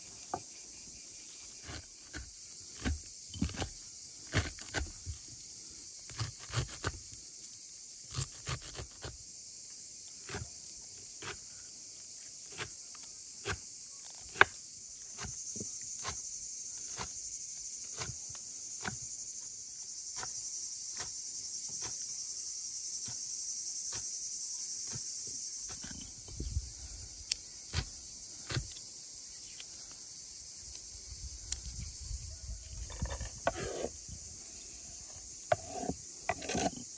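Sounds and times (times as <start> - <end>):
insects chirring: 0.0 - 36.9
knife chopping on wooden board: 32.9 - 33.9, 35.5 - 36.8.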